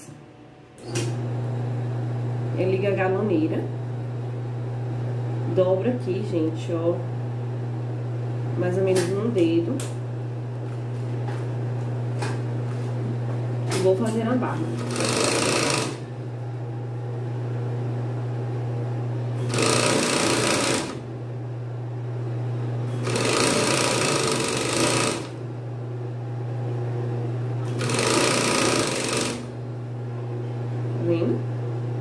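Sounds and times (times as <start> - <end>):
sewing machine motor humming: 13.8 - 16.4, 19.4 - 21.2, 22.8 - 25.5, 27.6 - 29.6
sewing machine stitching: 14.8 - 16.1, 19.4 - 21.0, 23.0 - 25.4, 27.6 - 29.5.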